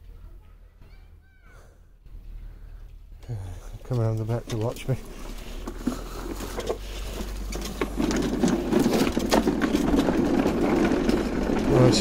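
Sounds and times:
electric lawnmower cutting grass: 5.0s - 12.0s.

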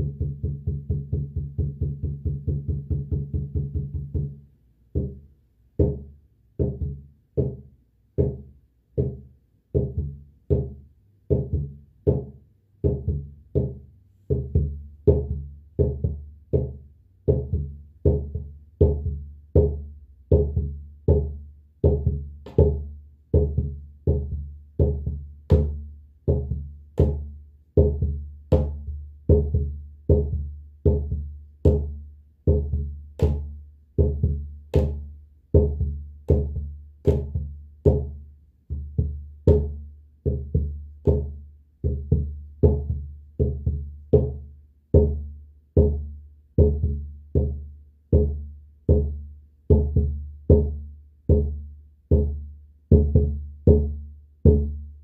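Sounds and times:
deep drum beating slowly: 38.7s - 44.4s.

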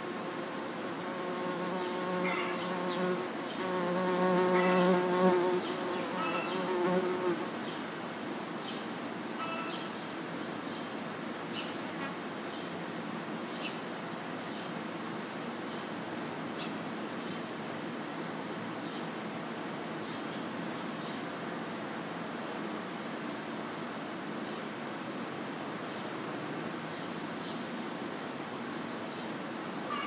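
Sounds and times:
flying insect buzzing: 0.0s - 7.6s
background hiss: 0.0s - 30.0s.

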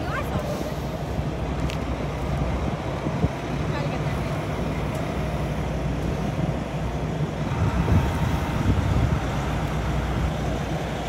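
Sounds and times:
truck diesel engine rumbling: 0.0s - 11.0s.

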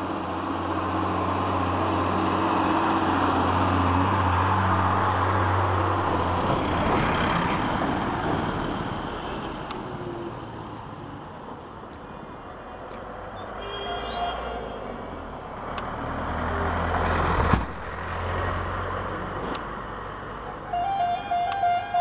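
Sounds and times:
large vehicle passing: 0.0s - 10.5s, 15.5s - 20.4s
vehicle road and engine noise: 0.0s - 22.0s.

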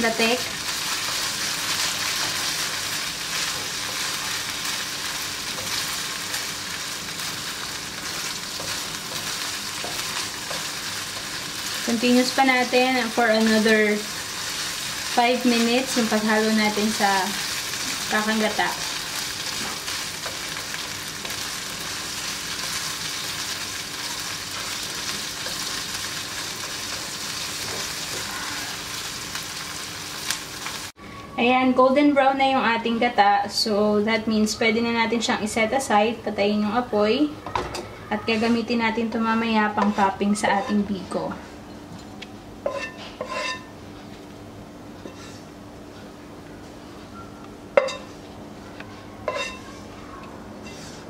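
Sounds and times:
curds sizzling in oil: 0.0s - 31.0s, 42.6s - 43.7s
spatula scraping a pan: 39.6s - 41.1s, 42.7s - 43.7s, 45.0s - 45.5s, 49.3s - 49.8s, 50.6s - 51.0s.

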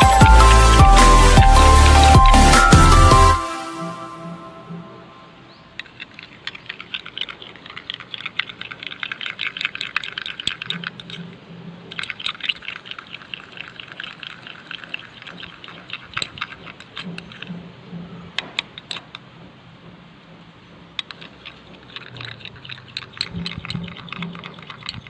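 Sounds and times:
spoon stirring sticky slime: 5.8s - 11.2s, 11.9s - 17.5s, 21.0s - 25.0s.

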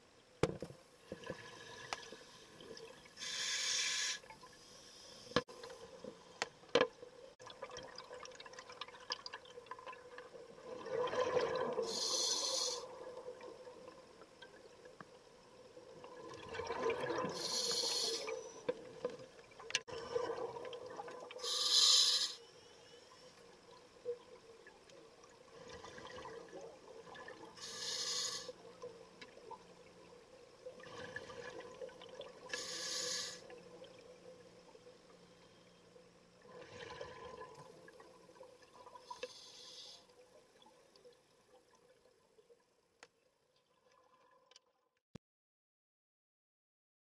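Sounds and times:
faint steady hum: 0.0s - 44.0s
scuba regulator breath hiss: 3.2s - 5.4s, 11.9s - 12.9s, 17.3s - 18.6s, 21.4s - 23.0s, 27.6s - 28.6s, 32.5s - 33.5s, 39.2s - 40.1s.

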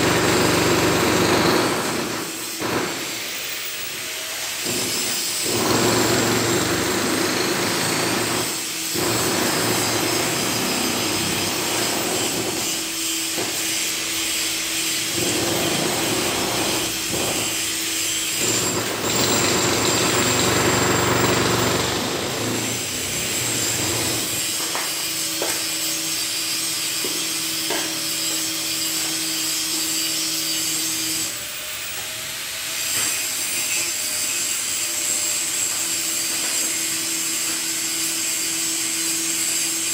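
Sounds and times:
angle grinder cutting steel: 7.8s - 32.1s.

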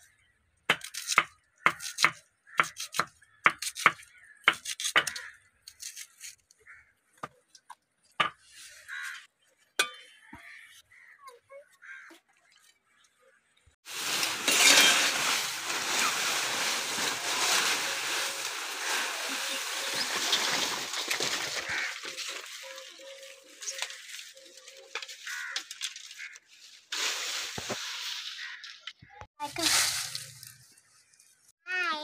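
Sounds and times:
dry leaves and straw rustling: 13.8s - 28.8s, 29.4s - 31.2s.

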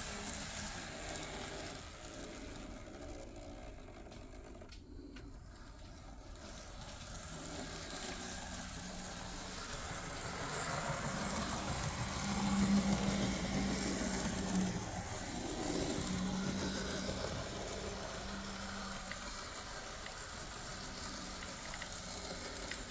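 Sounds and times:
wheels rattling on rails: 0.0s - 4.7s, 5.5s - 22.9s
model train motor humming: 0.0s - 22.9s.

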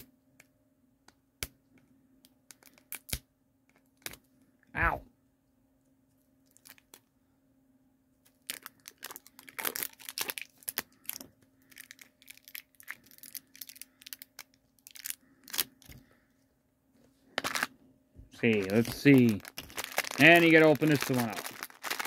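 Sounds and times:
plastic wrapper crinkling and ripping: 6.5s - 7.0s, 8.3s - 16.1s, 17.4s - 17.7s, 18.4s - 22.0s.

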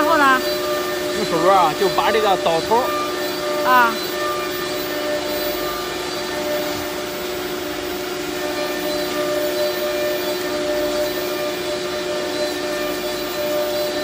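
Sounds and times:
cnc router machinery humming: 0.0s - 14.0s.

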